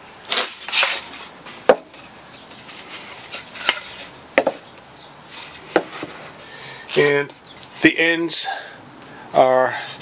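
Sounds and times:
wooden boards knocking: 0:01.7 - 0:01.9, 0:04.4 - 0:04.6, 0:05.7 - 0:06.2.

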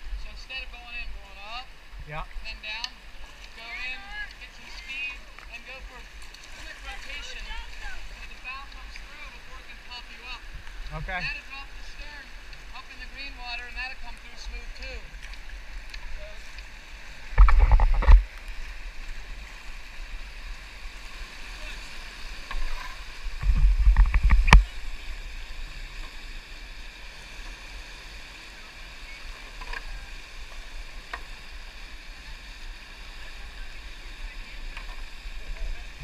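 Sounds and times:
wind buffeting the microphone: 0:17.3 - 0:18.4, 0:23.2 - 0:25.6.

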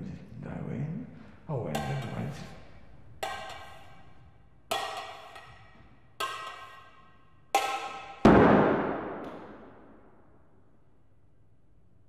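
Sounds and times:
loud deep crash: 0:08.2 - 0:10.0.

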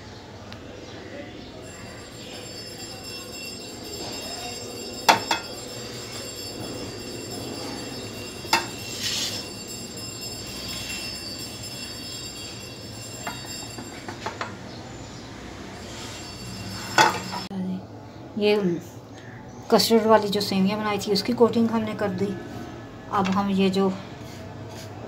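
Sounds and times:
pot and dish clinking: 0:03.8 - 0:14.8, 0:16.0 - 0:17.5
spatula scraping metal pot: 0:07.8 - 0:12.5, 0:15.8 - 0:17.5.

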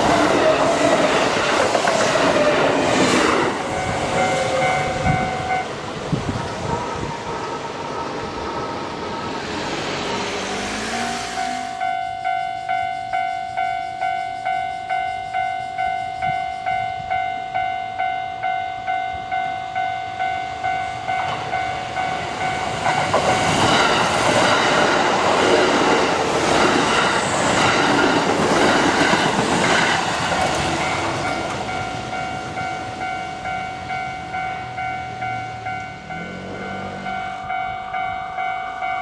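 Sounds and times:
electric train passing: 0:00.0 - 0:39.0
level crossing warning bell: 0:03.6 - 0:05.8, 0:10.5 - 0:39.0.

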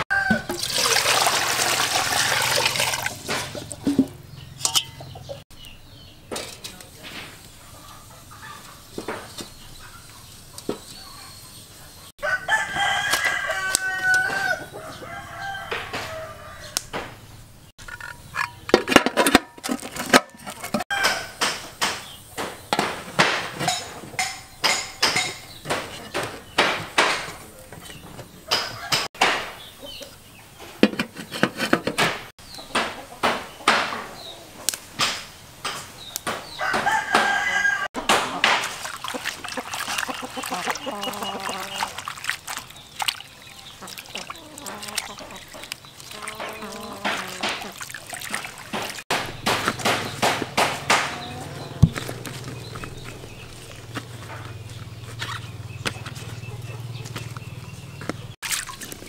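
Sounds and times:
rooster crowing: 0:00.0 - 0:00.6, 0:12.2 - 0:16.9, 0:28.6 - 0:29.1, 0:36.6 - 0:38.0
chickens clucking: 0:01.6 - 0:05.7, 0:06.3 - 0:21.5, 0:22.7 - 0:35.0, 0:35.7 - 0:58.4
metal pot clinks and knocks: 0:02.2 - 0:05.4, 0:17.8 - 0:21.5, 0:23.6 - 0:26.2.

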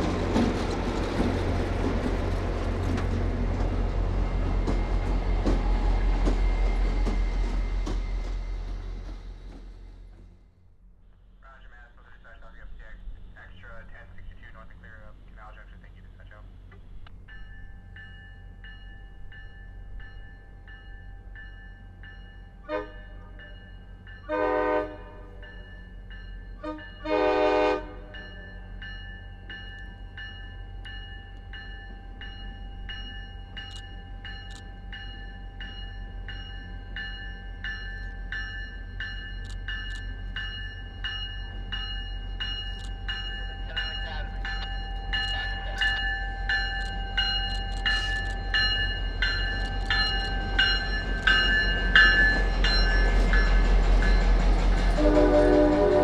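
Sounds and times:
train rumbling: 0:00.0 - 0:56.0
locomotive horn: 0:22.6 - 0:23.4, 0:24.2 - 0:25.4, 0:26.6 - 0:28.1, 0:54.9 - 0:56.0
bell dinging: 0:28.2 - 0:54.2.

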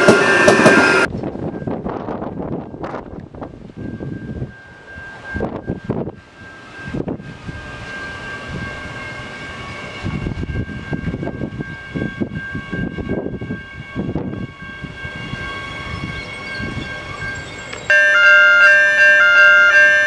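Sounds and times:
electric train high whine: 0:00.0 - 0:20.0
train wheels rumbling on track: 0:00.0 - 0:20.0.

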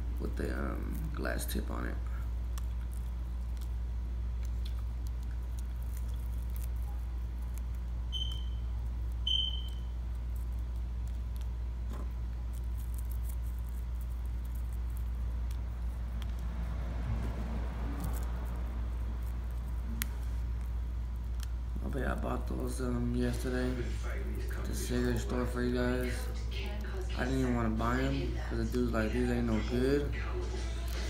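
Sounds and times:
steady low hum: 0:00.0 - 0:31.0
fingers crumbling dry leaves: 0:02.5 - 0:08.4, 0:09.0 - 0:23.8
short high chirps: 0:09.3 - 0:09.9.

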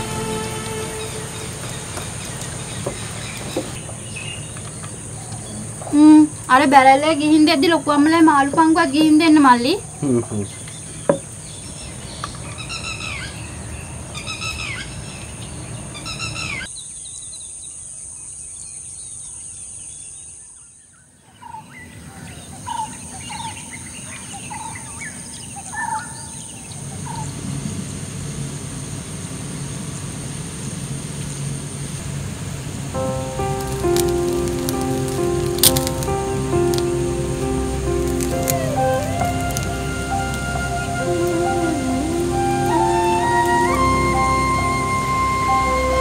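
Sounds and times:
low hum: 0:00.0 - 0:09.1, 0:29.4 - 0:46.0
high insect drone: 0:00.0 - 0:14.0, 0:26.2 - 0:46.0.

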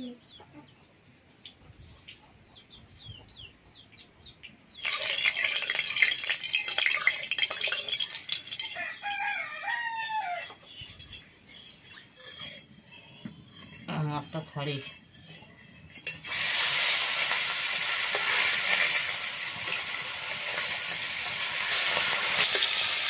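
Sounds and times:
small birds chirping: 0:00.0 - 0:05.4
oil sizzling in a wok: 0:04.8 - 0:13.8, 0:14.9 - 0:23.0
rooster crowing: 0:08.7 - 0:10.6.

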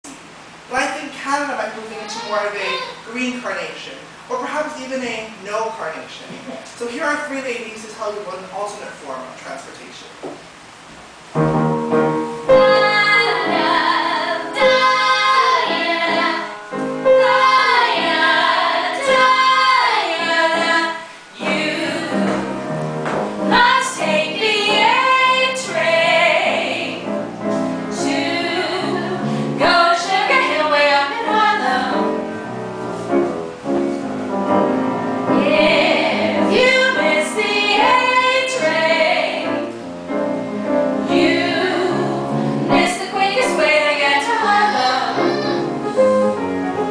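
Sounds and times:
piano accompaniment: 0:11.0 - 0:46.9
women singing together: 0:12.5 - 0:22.7, 0:23.5 - 0:27.1, 0:27.9 - 0:32.3, 0:35.3 - 0:39.6, 0:41.0 - 0:45.6.

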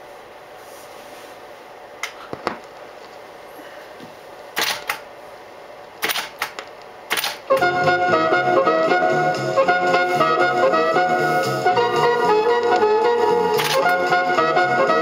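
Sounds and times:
faint hum: 0:00.0 - 0:15.0
sharp clicks: 0:06.0 - 0:07.4, 0:13.6 - 0:14.0.

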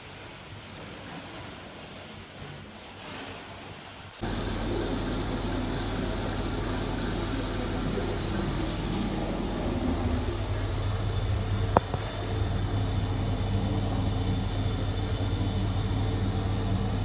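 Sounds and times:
faucet water running into basin: 0:04.2 - 0:17.0
low hum: 0:04.2 - 0:17.0.

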